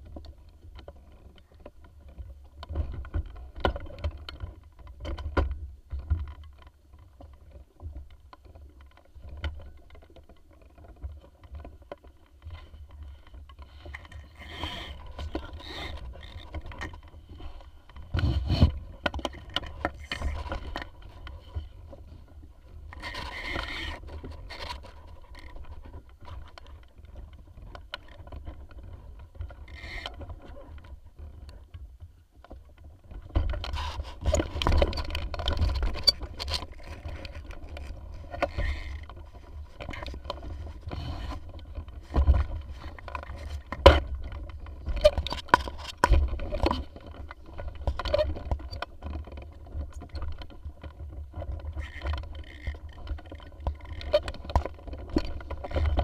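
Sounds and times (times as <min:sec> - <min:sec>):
knocks and scrapes on boat: 0:00.0 - 0:56.0
wind rumble on microphone: 0:14.1 - 0:32.0.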